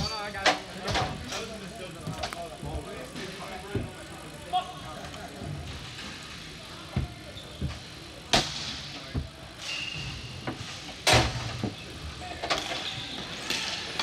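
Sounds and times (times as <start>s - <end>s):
hockey sticks and ball clacking: 12.6s - 14.0s.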